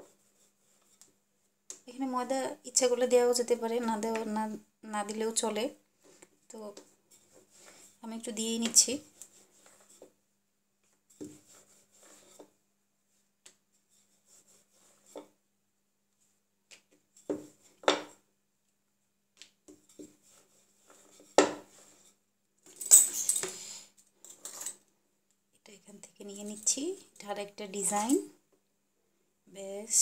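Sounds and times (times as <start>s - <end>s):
rolling pin rolling dough: 0.0s - 1.8s, 6.0s - 15.5s, 16.2s - 18.2s, 19.3s - 22.2s.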